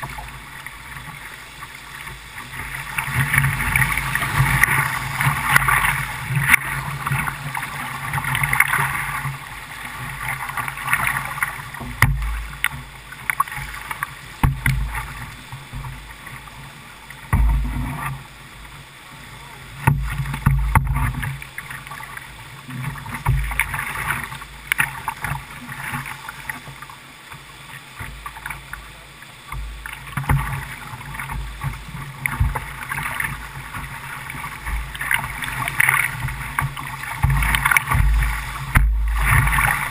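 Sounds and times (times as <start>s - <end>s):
whitewater rapids rushing: 0.0s - 39.9s
low thumps on microphone: 17.3s - 18.0s, 37.2s - 39.8s.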